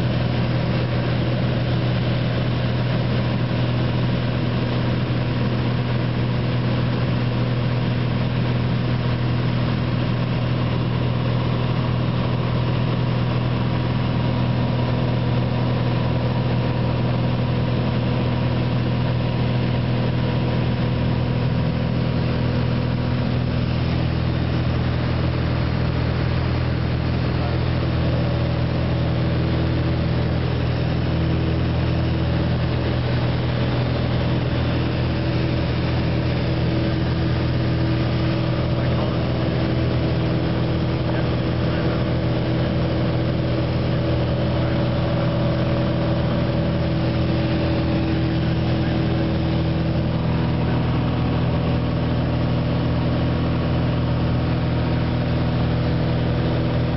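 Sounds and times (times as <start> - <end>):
propeller aircraft engine in cockpit: 0.0 - 56.9.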